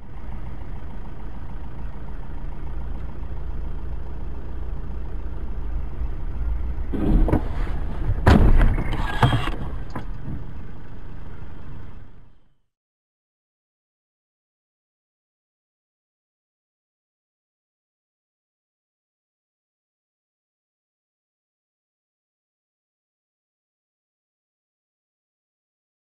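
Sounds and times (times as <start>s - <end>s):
car engine and tyres rumbling: 0.0s - 12.7s
car crash scraping and thuds: 6.8s - 10.8s
hard bang: 6.9s - 10.4s.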